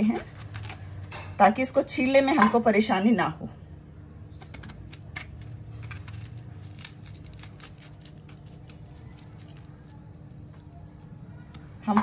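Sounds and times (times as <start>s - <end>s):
knife cutting jackfruit: 0.0s - 2.6s, 4.3s - 12.0s.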